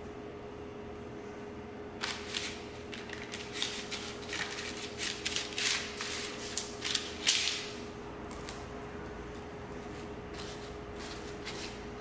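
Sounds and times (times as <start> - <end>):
faint hum: 0.0 - 12.0
parchment paper crinkling: 2.0 - 7.6.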